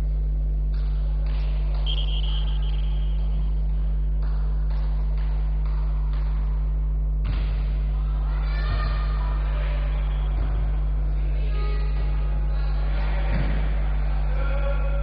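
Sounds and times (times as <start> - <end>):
faint sports hall noise: 0.0 - 15.0
low electrical hum: 0.0 - 15.0
short high tone: 1.9 - 3.2.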